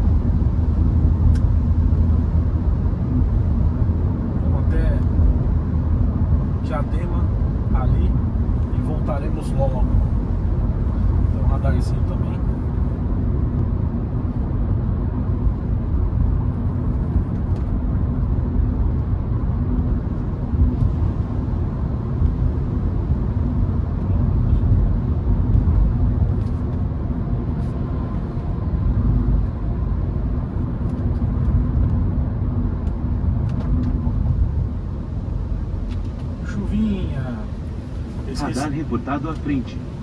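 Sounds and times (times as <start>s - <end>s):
car engine and tyre rumble: 0.0s - 40.0s.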